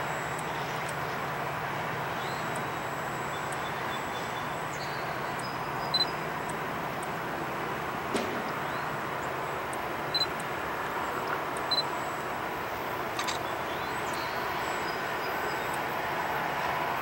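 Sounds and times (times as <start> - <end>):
distant freight train rumble: 0.0 - 17.0.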